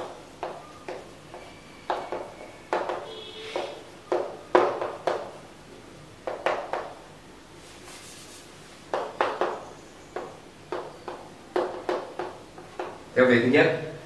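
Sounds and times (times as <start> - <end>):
chalk scratching on chalkboard: 7.6 - 8.8.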